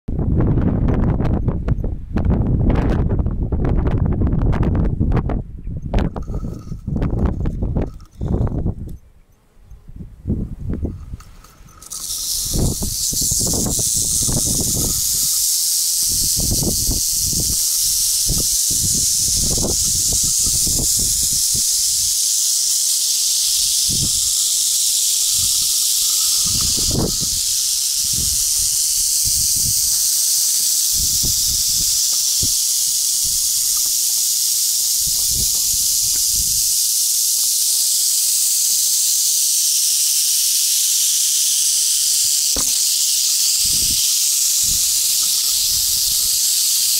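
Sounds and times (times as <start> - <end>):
microphone thumps and rumbles: 0.1 - 8.9
rattlesnakes rattling tails: 6.0 - 8.9, 10.7 - 46.9.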